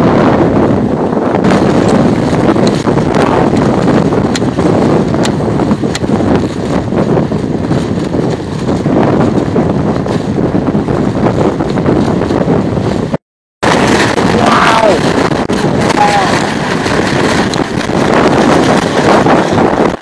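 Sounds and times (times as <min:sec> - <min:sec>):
wind buffeting microphone: 0:00.0 - 0:20.0
sharp ticks: 0:05.2 - 0:06.1.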